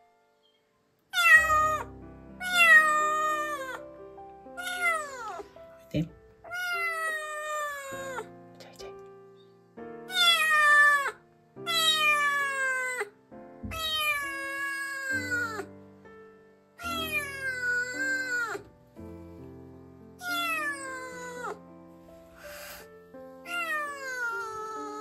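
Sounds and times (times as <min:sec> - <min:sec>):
quiet background music: 0:00.0 - 0:25.0
kitten meowing loudly: 0:01.1 - 0:03.8, 0:04.6 - 0:05.5, 0:06.5 - 0:08.3, 0:10.1 - 0:13.1, 0:13.7 - 0:15.7, 0:16.8 - 0:18.7, 0:20.2 - 0:21.6, 0:23.4 - 0:25.0.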